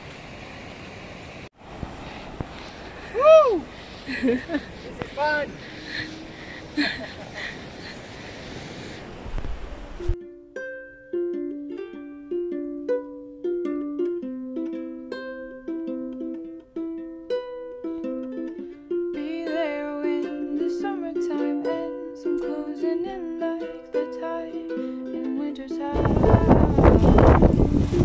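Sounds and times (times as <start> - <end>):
plucked string melody: 10.1 - 28.0.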